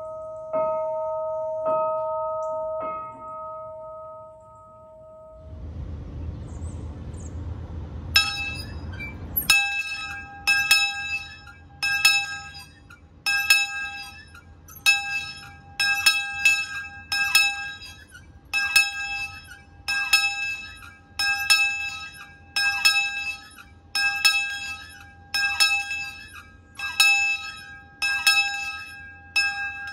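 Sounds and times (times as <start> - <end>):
low rumble: 5.2 - 12.5
brass bell ringing: 8.2 - 29.9.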